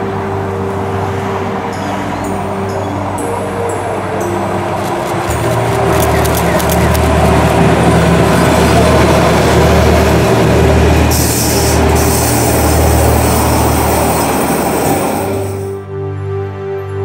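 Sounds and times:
electric train passing: 0.0s - 15.9s
wheels rolling on rails: 4.5s - 15.8s.

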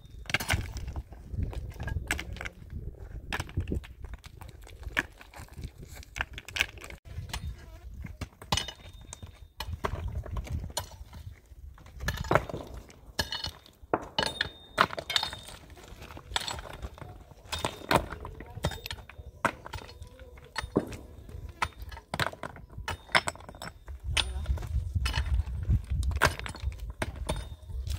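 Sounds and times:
hard objects knocking and clinking: 8.2s - 27.9s.

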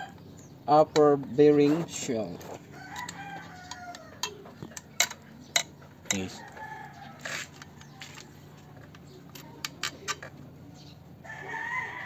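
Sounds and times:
rooster crowing: 2.7s - 4.4s, 6.3s - 7.6s, 11.2s - 12.0s.

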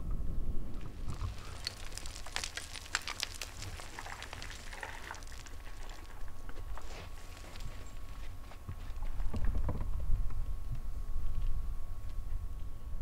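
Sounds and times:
wind rumble: 0.0s - 6.8s.

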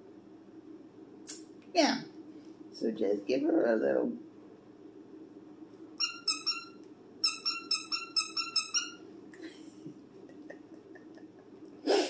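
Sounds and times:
dog toy squeaking: 6.0s - 9.0s.

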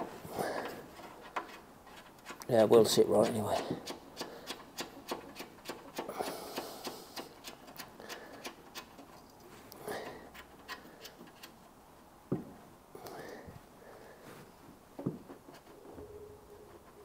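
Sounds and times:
hand tools clicking on metal: 3.2s - 9.4s.

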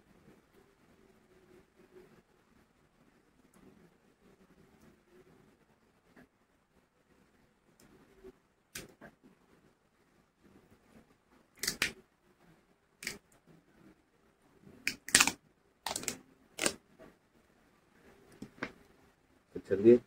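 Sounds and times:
plastic bottle cap cracking: 14.9s - 16.8s.

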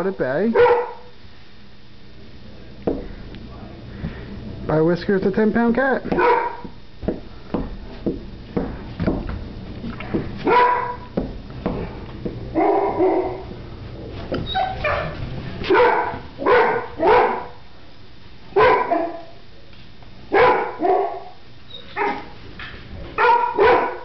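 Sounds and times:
puppies barking: 0.5s - 1.1s, 6.1s - 6.8s, 10.4s - 11.2s, 12.5s - 13.6s, 14.5s - 17.6s, 18.6s - 19.4s, 20.3s - 22.4s, 23.2s - 24.0s.

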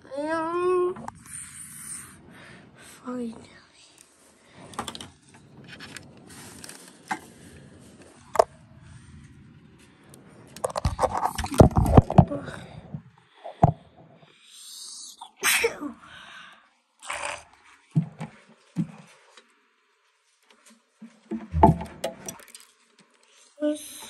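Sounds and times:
plastic clicks and knocks: 10.6s - 12.3s, 21.3s - 22.7s
scraping and knocking: 10.6s - 12.5s, 21.3s - 22.6s.

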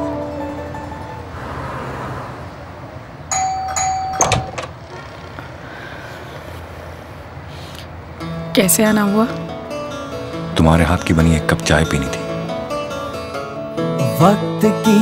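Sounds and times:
low street hum: 0.0s - 15.0s
doorbell chime: 3.3s - 4.6s.

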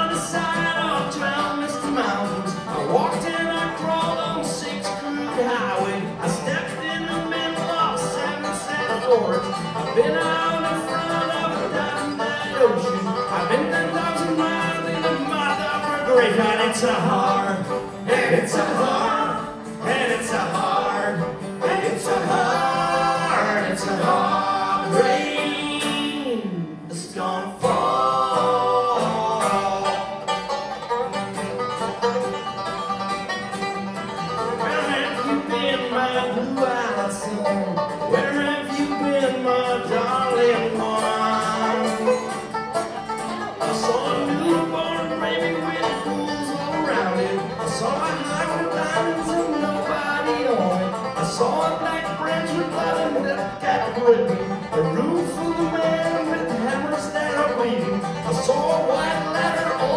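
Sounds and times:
acoustic guitars: 0.0s - 59.9s
banjo: 0.0s - 59.9s
bending melodic lead line: 0.0s - 59.9s.

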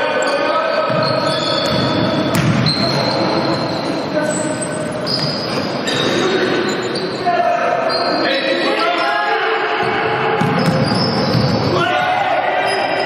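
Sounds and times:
voices in a hall: 0.0s - 13.0s
sneakers squeaking on wooden floor: 0.2s - 7.2s, 7.8s - 8.3s, 9.8s - 11.8s.

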